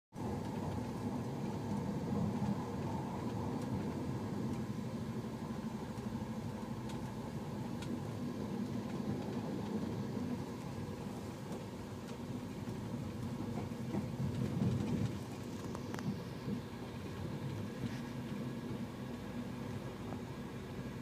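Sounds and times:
bus engine and road rumble: 0:00.1 - 0:21.0
faint ticks: 0:00.3 - 0:10.9.

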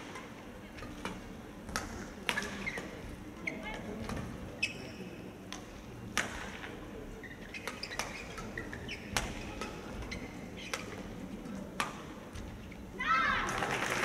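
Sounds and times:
shoe squeaks on court floor: 0:02.3 - 0:03.7, 0:04.6 - 0:05.2, 0:07.2 - 0:09.3, 0:10.0 - 0:11.0.

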